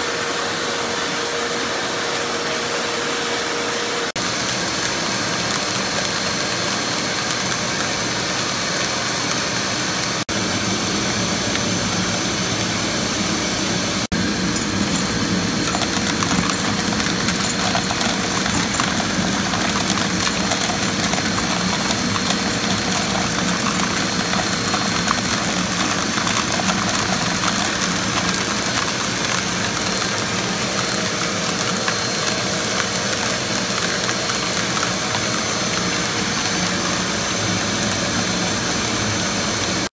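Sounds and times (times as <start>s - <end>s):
blower rushing: 10.4s - 29.7s.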